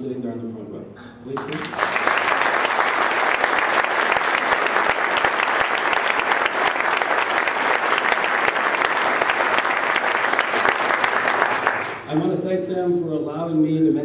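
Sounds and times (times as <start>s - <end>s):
audience applauding: 1.3s - 12.3s.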